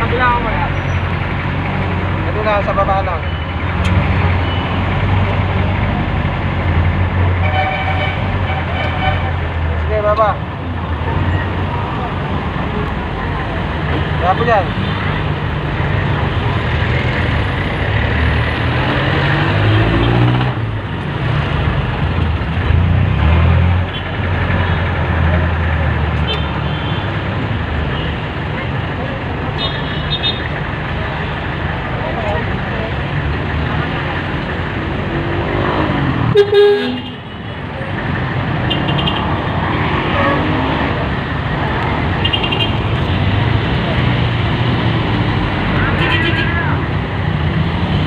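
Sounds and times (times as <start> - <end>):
diesel engine revving: 0.0 - 26.2, 30.4 - 48.0
street traffic noise: 0.0 - 48.0
vehicle horn double toot: 36.3 - 37.2.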